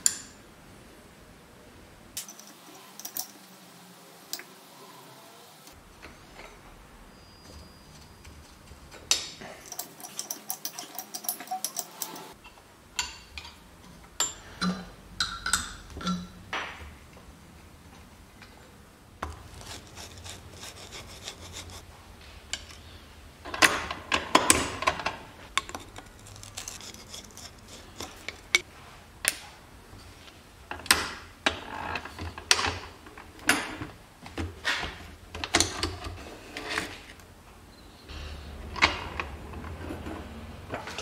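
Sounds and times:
metal tools clicking and scraping: 2.2s - 3.5s, 7.5s - 16.4s, 19.2s - 21.8s, 24.4s - 28.7s
metal knocks and clinks: 9.1s - 12.4s.

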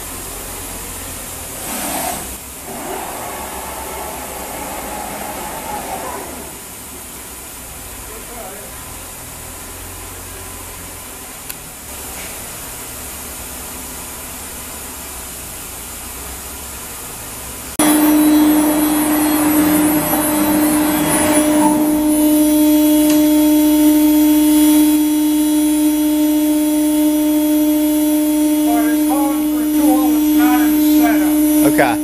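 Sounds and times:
router loud steady whine: 0.0s - 7.4s, 17.8s - 32.0s
machine hum: 0.0s - 8.3s, 17.7s - 32.0s.

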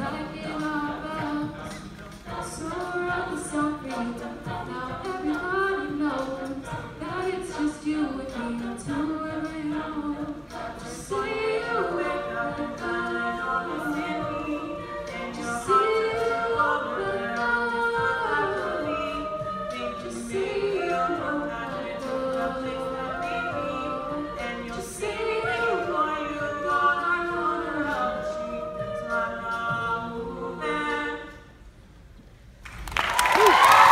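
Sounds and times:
solo voices singing: 0.0s - 31.6s
a cappella group singing: 0.0s - 31.9s
vocal percussion: 0.0s - 32.3s.

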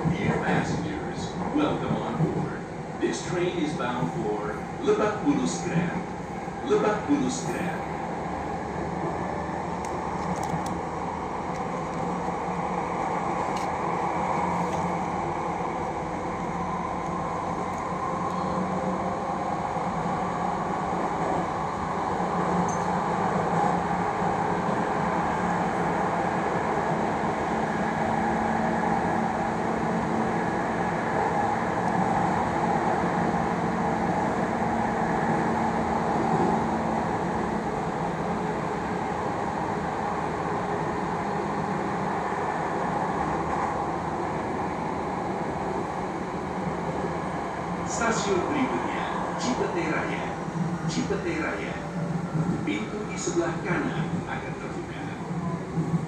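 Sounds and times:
train wheels rumbling: 0.0s - 56.0s.

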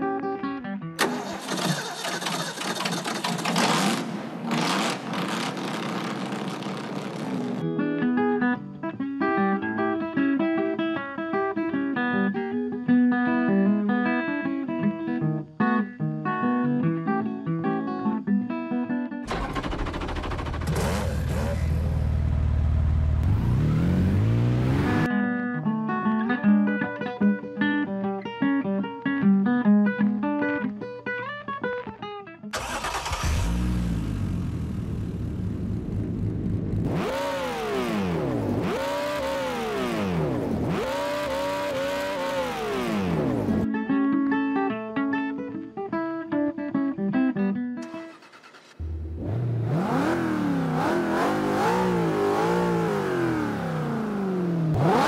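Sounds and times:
acoustic guitar music: 0.0s - 1.0s, 7.4s - 19.2s, 24.9s - 32.5s, 41.5s - 47.8s
car engine revving: 1.0s - 7.6s, 19.3s - 25.1s, 32.6s - 43.6s, 48.1s - 55.0s.

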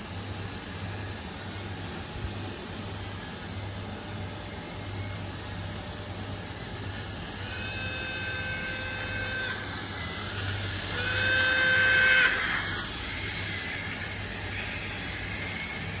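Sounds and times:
model train running hum: 0.0s - 16.0s
model train horn: 10.9s - 12.4s.

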